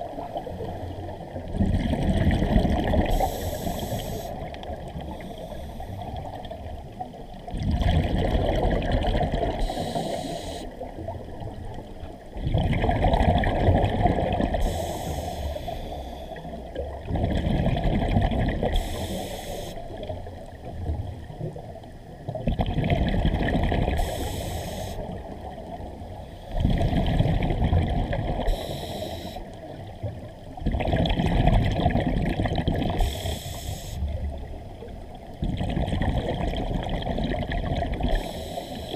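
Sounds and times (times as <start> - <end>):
regulator hiss: 3.1 - 4.4, 9.6 - 10.8, 14.6 - 16.4, 18.8 - 19.8, 24.0 - 25.1, 28.5 - 29.5, 33.0 - 34.1, 38.1 - 38.9.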